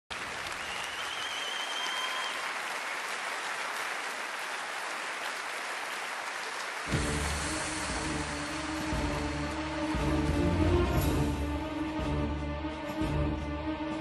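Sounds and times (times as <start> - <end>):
audience applauding: 0.1 - 10.6
warbling whistle: 0.6 - 2.4.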